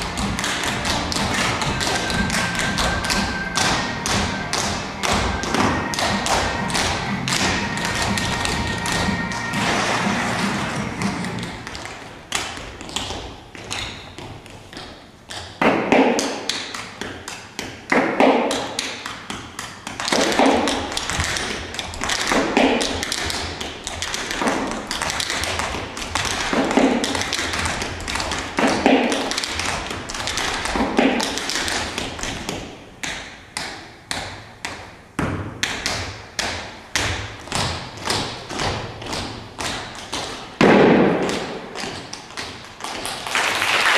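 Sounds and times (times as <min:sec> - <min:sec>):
quick dance taps: 0:00.0 - 0:09.3, 0:10.5 - 0:43.3
heavy stage thuds: 0:36.5 - 0:42.1.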